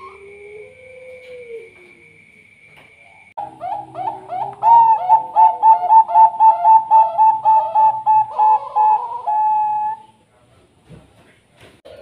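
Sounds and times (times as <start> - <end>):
dove cooing: 0.0 - 2.2, 3.4 - 10.2.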